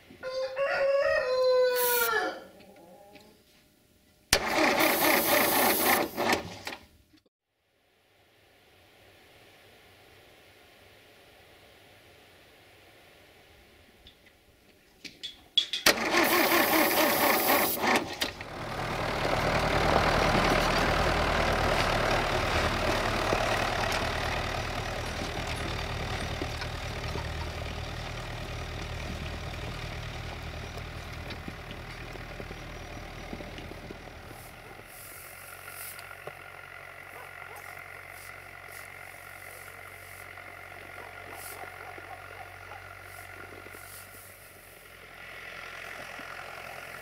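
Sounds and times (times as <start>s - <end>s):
diesel engine running: 4.4s - 6.6s, 15.9s - 47.0s.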